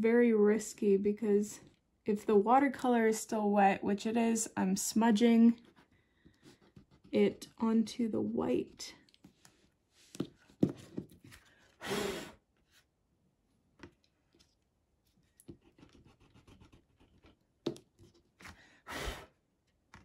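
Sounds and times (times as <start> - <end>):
scratchy rubbing on paper: 15.5 - 17.4.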